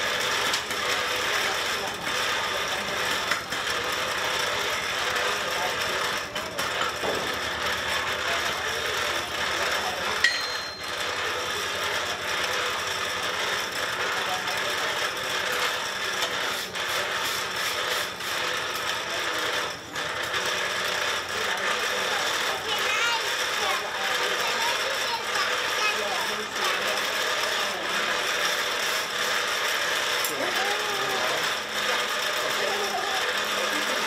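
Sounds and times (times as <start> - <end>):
faint motor hum: 0.0 - 34.0.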